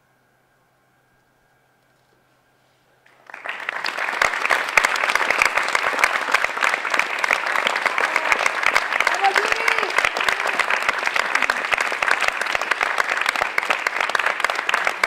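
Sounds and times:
audience applause: 3.0 - 15.0.

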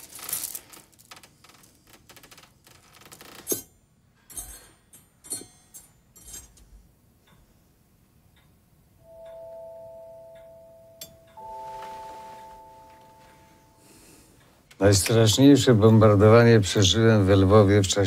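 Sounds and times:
soft ticking: 6.8 - 14.8
bell-like chime tones: 9.0 - 14.0.

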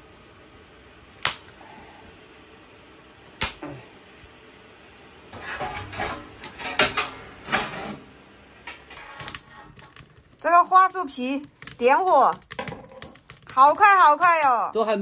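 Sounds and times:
stove door clattering: 5.4 - 7.9.

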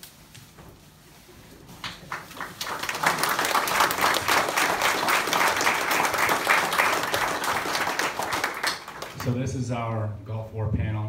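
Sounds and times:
crowd applauding: 1.9 - 9.4.

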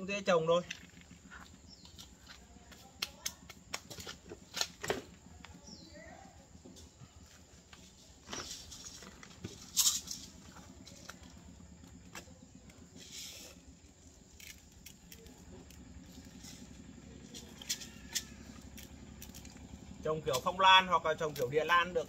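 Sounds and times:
light handling rustles and clicks: 6.7 - 13.6.

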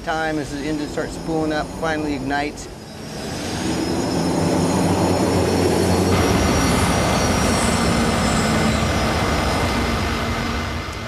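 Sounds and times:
gas turbine engine roaring: 0.0 - 11.0
high-pitched turbine whine: 0.0 - 11.0.

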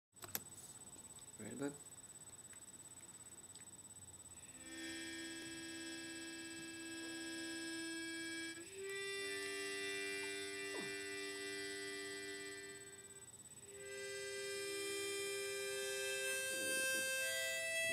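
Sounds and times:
harmonica chords: 4.3 - 17.9.

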